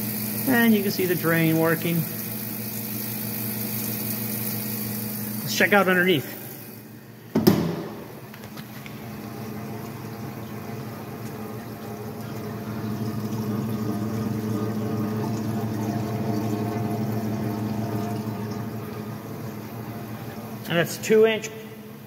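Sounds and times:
machine humming: 0:00.0 - 0:22.0
coolant splashing into tote: 0:07.5 - 0:20.7.

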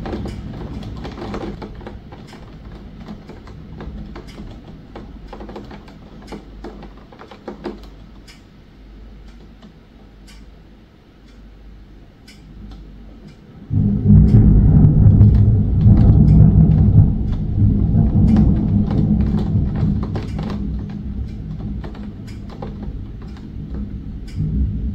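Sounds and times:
raindrops ticking: 0:00.0 - 0:08.5, 0:13.7 - 0:24.9
rain on a window: 0:00.0 - 0:10.2, 0:12.8 - 0:24.9
low thunder rumbling: 0:13.6 - 0:24.9.

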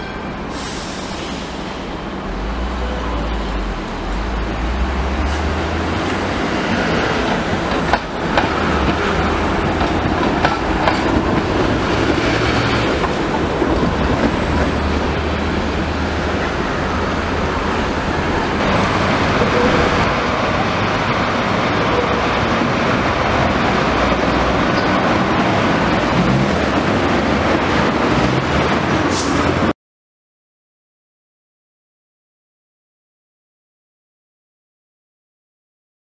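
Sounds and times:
tram wheels rolling on rails: 0:01.8 - 0:29.7.

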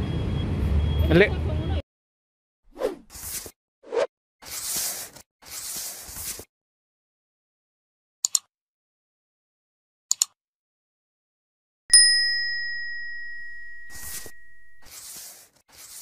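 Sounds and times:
bright bell ding: 0:11.9 - 0:14.8.

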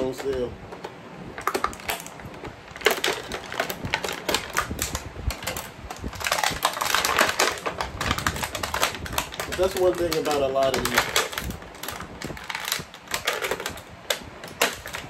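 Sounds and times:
plastic packaging crackling: 0:00.0 - 0:15.0.

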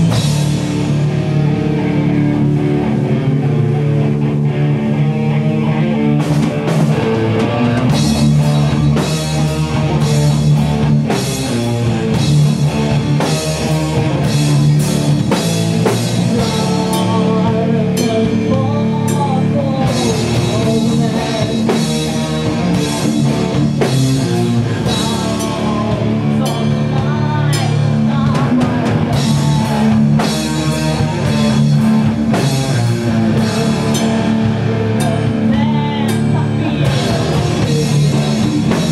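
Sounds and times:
distorted electric guitars: 0:00.0 - 0:38.9
drum kit: 0:00.0 - 0:38.9
person singing: 0:15.8 - 0:23.4, 0:24.3 - 0:31.8, 0:32.6 - 0:38.9.

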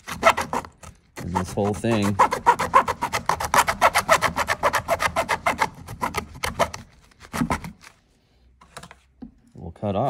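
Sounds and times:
hacksaw blade rasping through plastic: 0:00.0 - 0:08.0.

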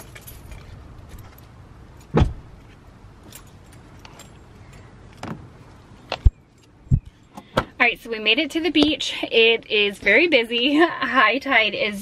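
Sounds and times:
low steady rumble: 0:00.0 - 0:12.0
bags thumping in car trunk: 0:02.1 - 0:02.5.

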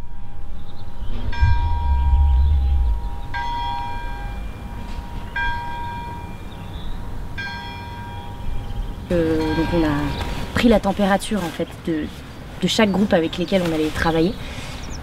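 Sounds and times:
low rumble: 0:01.1 - 0:05.4.

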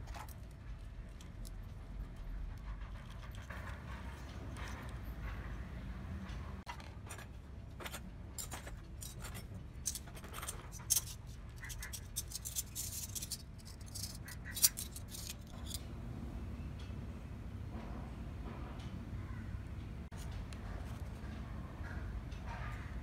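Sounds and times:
utensils clicking and clinking: 0:02.8 - 0:15.9.

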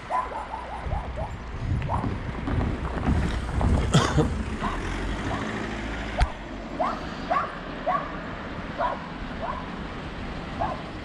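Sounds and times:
wind buffeting microphone: 0:00.0 - 0:05.4.

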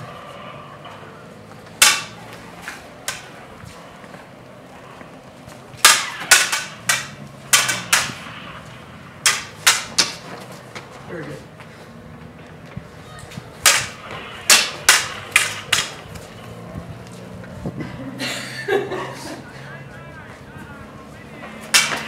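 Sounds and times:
lightsaber blades clacking: 0:00.4 - 0:10.9, 0:13.3 - 0:17.6, 0:21.4 - 0:22.0.

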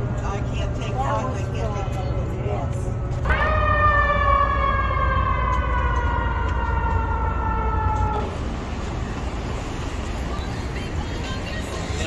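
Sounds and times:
low rumble of traffic: 0:00.0 - 0:12.0
siren sliding down in pitch: 0:03.2 - 0:08.4.

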